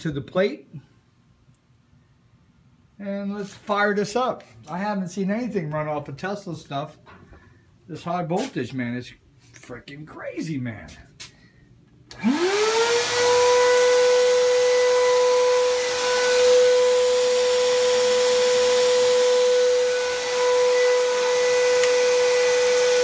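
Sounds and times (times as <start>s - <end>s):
constant hiss: 0.1s - 12.0s.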